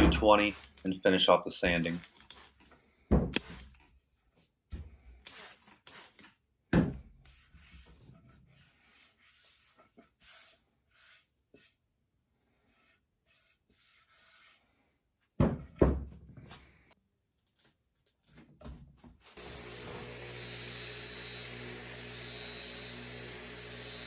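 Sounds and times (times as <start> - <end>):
spray bottle squirting water: 1.8 - 2.7, 3.4 - 3.8, 5.2 - 6.3
hand rubbing wet wood: 7.2 - 11.8, 12.5 - 14.8.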